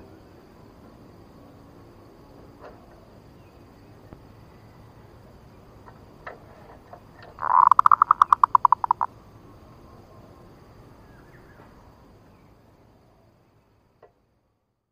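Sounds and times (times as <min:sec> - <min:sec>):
dove cooing: 0:07.4 - 0:09.1.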